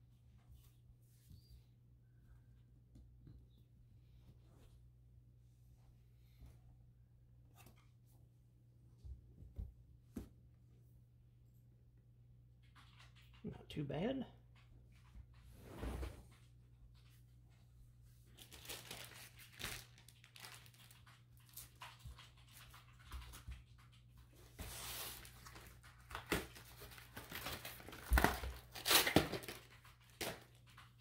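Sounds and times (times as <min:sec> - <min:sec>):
packaging rustling and tearing: 0:18.4 - 0:21.8, 0:24.7 - 0:30.6.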